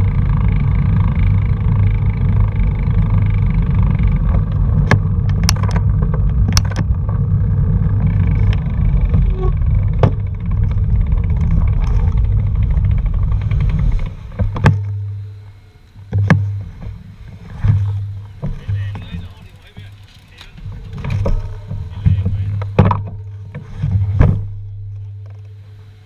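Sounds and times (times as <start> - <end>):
road and wind rumble: 0.0 - 26.0
vehicle engine running: 0.0 - 26.0
sharp knocks: 16.1 - 17.0, 17.6 - 19.9, 21.0 - 24.6.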